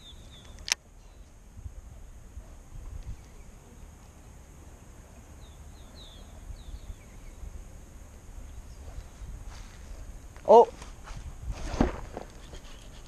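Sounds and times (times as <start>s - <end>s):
bird chirping: 0.0s - 1.3s, 5.2s - 7.6s
wind rumbling on microphone: 1.2s - 3.8s, 5.8s - 13.0s.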